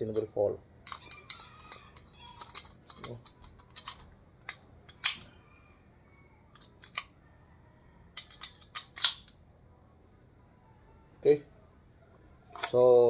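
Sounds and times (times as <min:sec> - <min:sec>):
rifle parts clicking and knocking: 0:00.0 - 0:05.3, 0:06.5 - 0:07.2, 0:08.1 - 0:09.4, 0:12.5 - 0:12.8.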